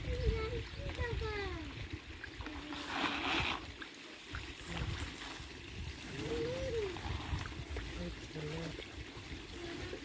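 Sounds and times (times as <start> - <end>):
pond water splashing: 0.0 - 10.0.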